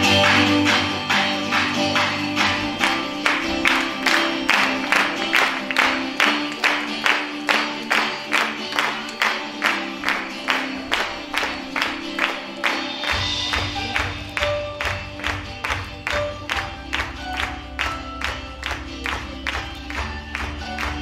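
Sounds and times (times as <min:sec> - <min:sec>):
music with sharp percussive beat: 0:00.0 - 0:21.0.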